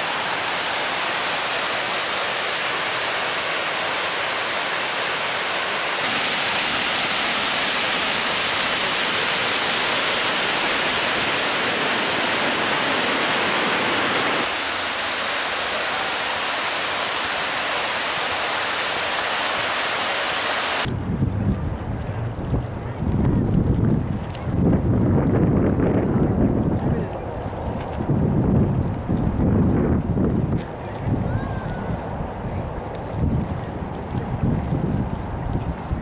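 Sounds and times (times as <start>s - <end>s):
waterfall rushing over rocks: 0.0s - 20.9s.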